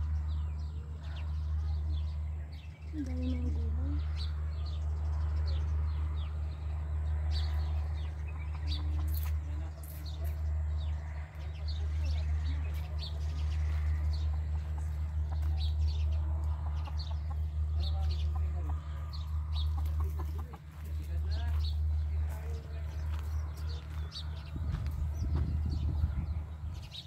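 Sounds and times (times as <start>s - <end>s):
small birds chirping: 0.0s - 27.0s
steady low rumble: 0.0s - 27.0s
chicken clucking: 14.2s - 21.6s.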